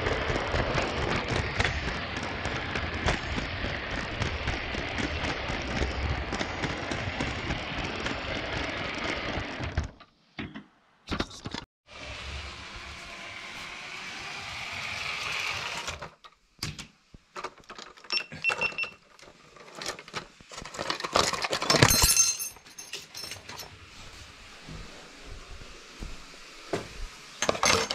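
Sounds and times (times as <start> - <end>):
toy train motor running on track: 0.0 - 9.7, 11.9 - 16.2.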